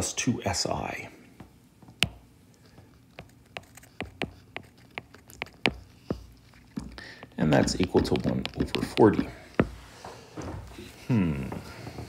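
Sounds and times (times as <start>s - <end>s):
stylus tapping on tablet screen: 1.4s - 9.8s.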